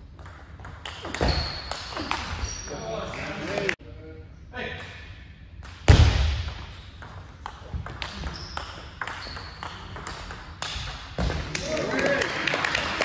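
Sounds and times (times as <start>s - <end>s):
high squeaks: 1.1s - 3.1s, 8.1s - 9.9s.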